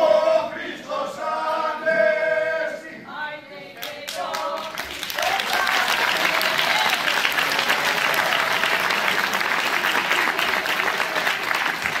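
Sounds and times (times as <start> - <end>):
audience applauding: 3.8 - 12.0.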